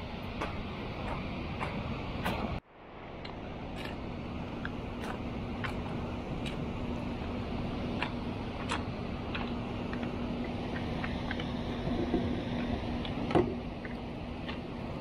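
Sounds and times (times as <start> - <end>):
low hum: 0.0 - 15.0
water rushing from a spillway: 3.3 - 15.0.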